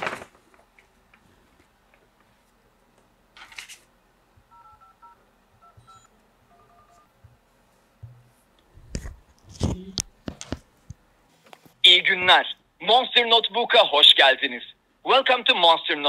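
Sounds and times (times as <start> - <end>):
phone keypad dialing tones: 4.5 - 7.1.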